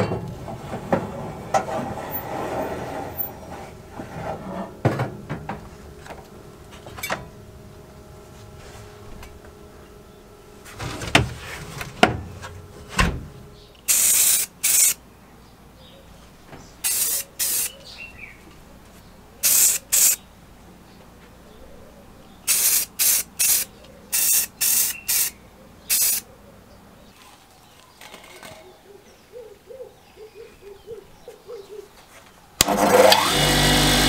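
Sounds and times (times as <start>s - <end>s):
aerosol spray paint hissing: 13.9s - 15.0s, 16.8s - 17.7s, 19.4s - 20.2s, 22.5s - 26.2s.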